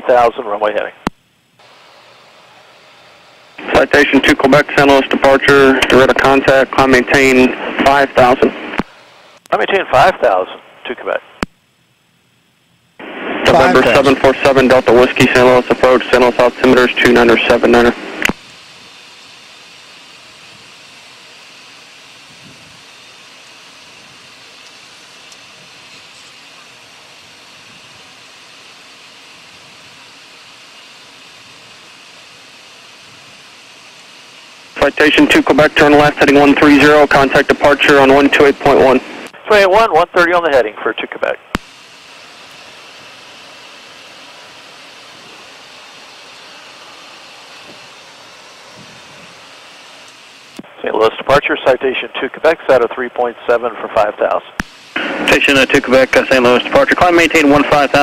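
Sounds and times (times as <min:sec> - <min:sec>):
turbofan engines: 0:01.6 - 0:09.4, 0:13.5 - 0:39.4, 0:41.5 - 0:58.0
jet cockpit hiss: 0:01.6 - 0:11.2, 0:13.0 - 0:58.0
steady high tone: 0:13.0 - 0:17.9
airflow rush: 0:54.6 - 0:58.0.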